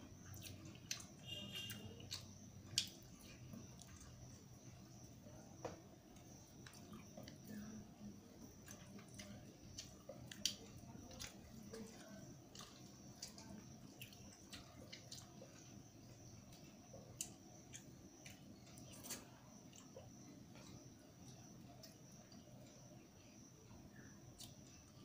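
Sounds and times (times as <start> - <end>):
chewing: 0.0 - 5.3, 6.1 - 23.0, 24.0 - 25.0
fingers squishing food on plate: 0.2 - 22.9
faint high-pitched tone: 1.2 - 2.2.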